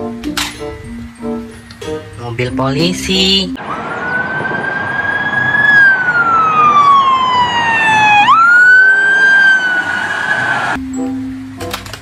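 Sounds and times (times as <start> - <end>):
police siren wailing: 3.6 - 10.8.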